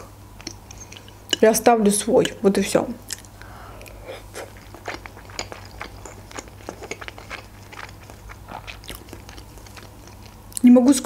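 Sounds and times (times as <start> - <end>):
person chewing food: 3.0 - 10.6
wet mouth clicks and smacks: 3.1 - 10.6.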